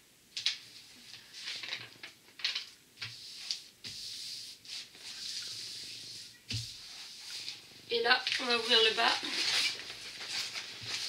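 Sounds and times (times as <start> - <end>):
paper rustling: 8.2 - 11.0.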